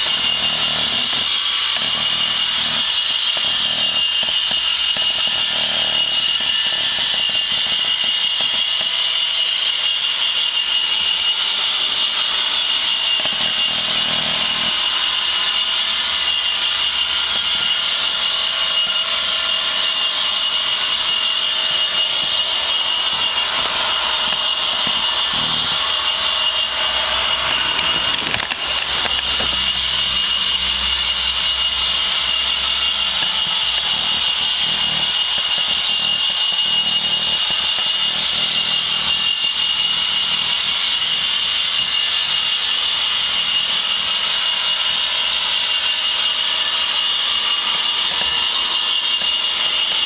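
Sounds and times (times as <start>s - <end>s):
model train whine and hiss: 1.2s - 5.5s, 29.2s - 50.0s.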